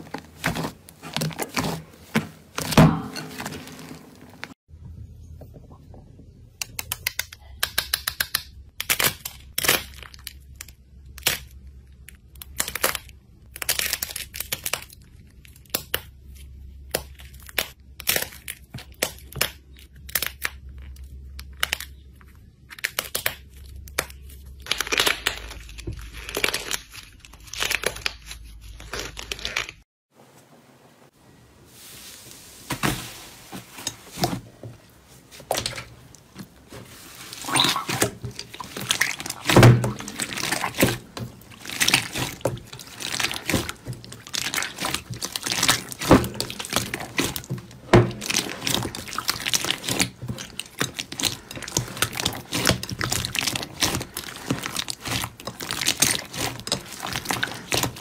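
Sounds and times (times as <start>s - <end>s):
slime coating cracking and crinkling: 6.6s - 29.8s, 35.3s - 58.0s
slime tearing and crackling: 6.8s - 16.2s, 16.8s - 22.0s, 22.6s - 29.8s, 35.5s - 58.0s.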